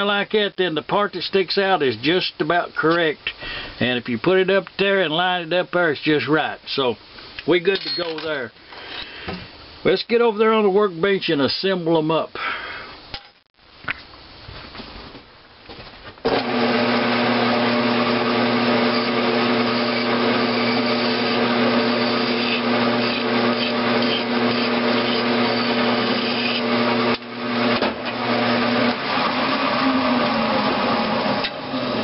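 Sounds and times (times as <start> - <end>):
lathe motor and gear whine: 16.3 - 32.0
hand file scraping metal: 18.8 - 26.8.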